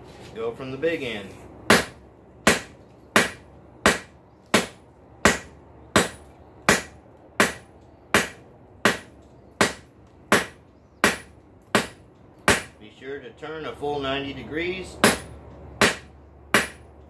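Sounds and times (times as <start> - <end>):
hammer striking metal on anvil: 1.7 - 12.8, 15.0 - 16.9.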